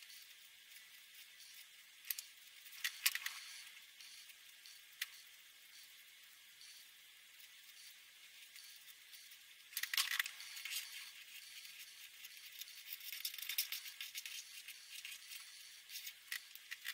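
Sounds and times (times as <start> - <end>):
marker pen scratching on paper: 10.2 - 16.9.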